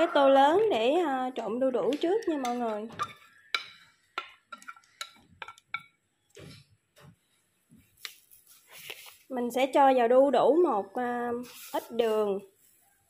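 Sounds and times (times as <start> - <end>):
rustling of papaya strands: 7.8 - 9.6, 11.3 - 13.0.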